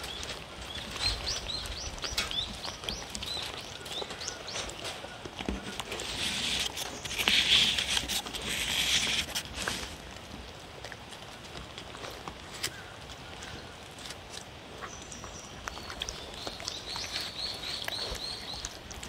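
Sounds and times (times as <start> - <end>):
dog chewing and licking: 0.0 - 13.2, 13.9 - 19.0.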